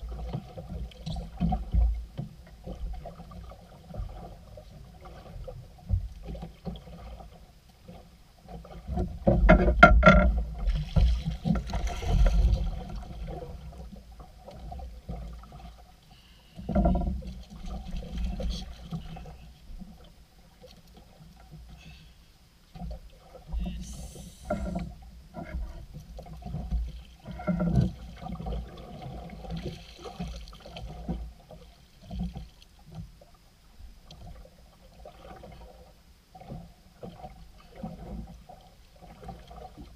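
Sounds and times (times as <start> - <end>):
water splashing: 0.0 - 22.1, 22.7 - 33.4, 34.1 - 39.9
knocks against boat: 8.9 - 11.8
thumps: 9.2 - 10.4.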